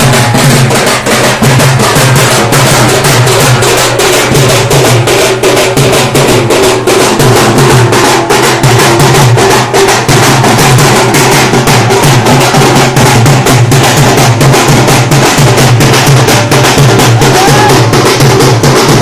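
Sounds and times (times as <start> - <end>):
barrel drums beaten fast: 0.0 - 19.0.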